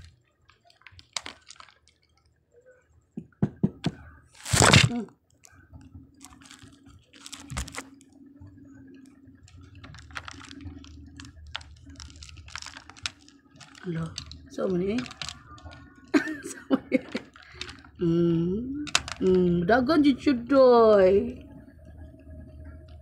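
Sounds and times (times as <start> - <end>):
chopsticks clicking on candy: 0.5 - 2.1, 9.5 - 18.0, 18.9 - 19.4.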